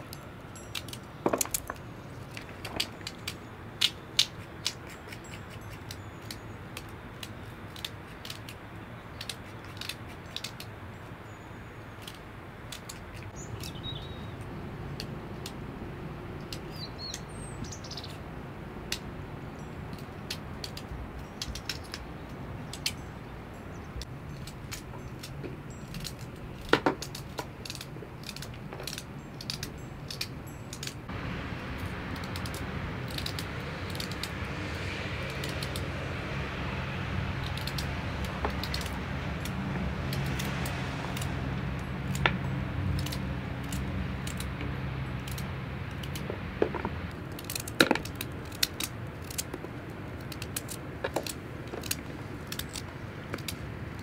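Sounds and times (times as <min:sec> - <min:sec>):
small bird chirping: 0:12.8 - 0:15.1, 0:16.4 - 0:18.2.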